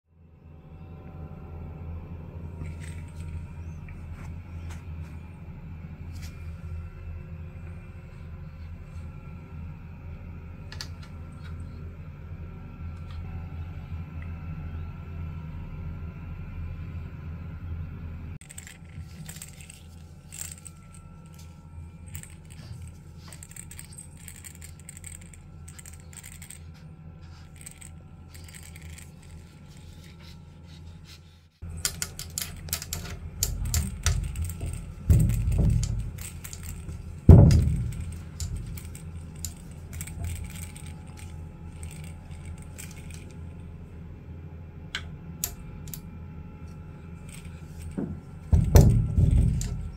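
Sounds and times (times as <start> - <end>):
steady low hum: 0.1 - 49.9.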